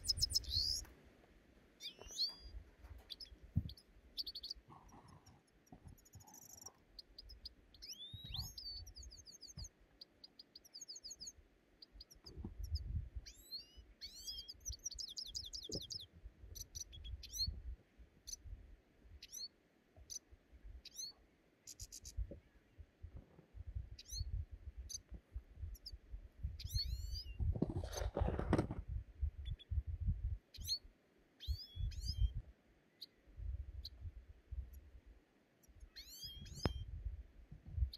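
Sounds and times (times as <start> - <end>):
small birds chirping: 0.0 - 1.0, 1.7 - 35.0, 35.6 - 37.9
dull low thuds: 2.0 - 3.8, 27.4 - 30.4, 36.4 - 37.9.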